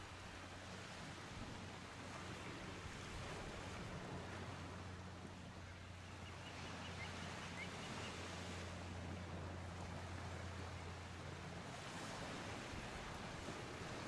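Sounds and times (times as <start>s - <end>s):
small waves washing on shore: 0.0s - 14.0s
faint bird chirps: 5.7s - 8.2s.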